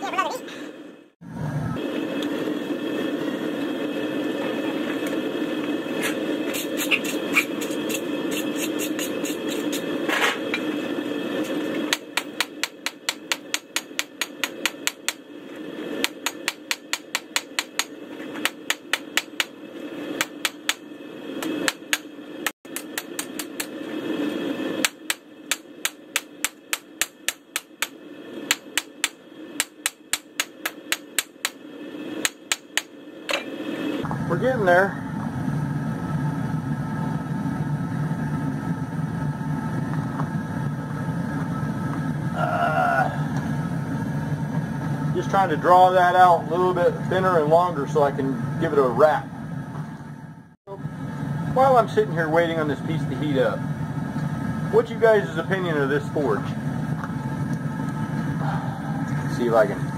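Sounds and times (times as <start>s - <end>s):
forge low rumble: 0.0s - 6.5s, 33.0s - 59.9s
hammer striking steel on anvil: 11.9s - 15.2s, 16.0s - 19.6s, 24.8s - 31.6s, 32.2s - 33.5s.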